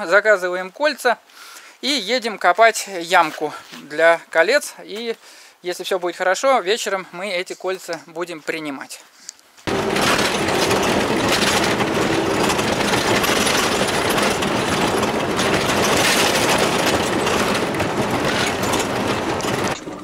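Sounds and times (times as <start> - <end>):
cabin rattling: 9.7 - 20.0
tyre and road rumble: 9.7 - 20.0.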